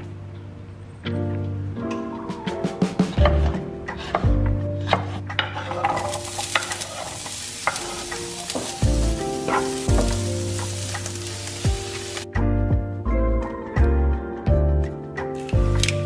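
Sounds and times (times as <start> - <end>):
background music with beat: 1.0 - 5.5, 7.7 - 16.0
onion sizzling in hot oil: 5.6 - 12.3.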